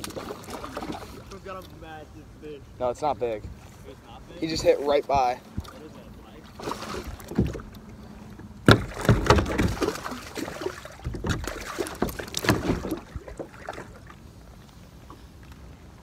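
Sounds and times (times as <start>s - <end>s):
water splashing: 0.0s - 2.0s, 3.5s - 15.8s
knocks against plastic kayak hull: 8.6s - 10.0s.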